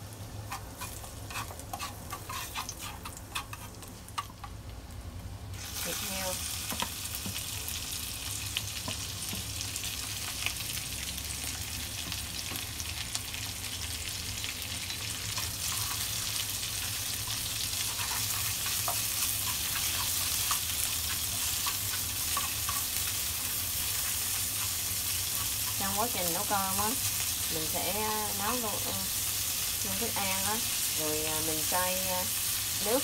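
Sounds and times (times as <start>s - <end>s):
wooden utensil scraping a pan: 0.5s - 3.9s, 17.4s - 27.2s
meat sizzling in hot oil: 5.5s - 33.0s.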